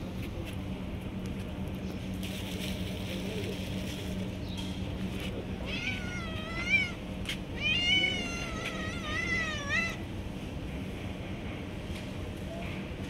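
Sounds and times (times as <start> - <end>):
cats meowing: 5.6 - 7.0, 7.6 - 10.1.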